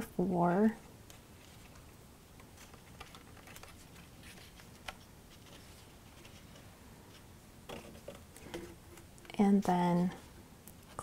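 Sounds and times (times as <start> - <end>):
paper ticks and rustles: 1.0 - 9.4.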